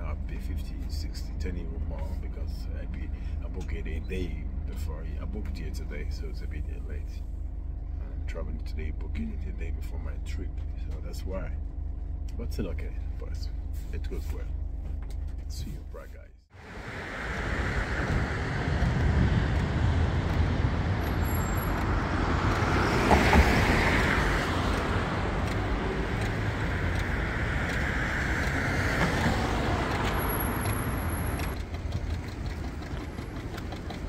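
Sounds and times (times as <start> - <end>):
cars passing on street: 6.5 - 8.3, 9.4 - 15.5, 16.5 - 34.0.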